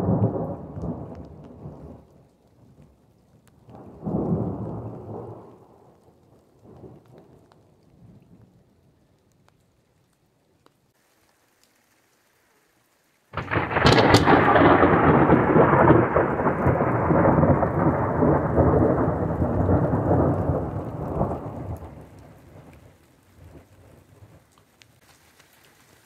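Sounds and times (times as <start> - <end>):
thunder crack and rumble: 0.0 - 2.1, 3.6 - 6.0, 13.3 - 22.8
faint rain: 0.0 - 26.0.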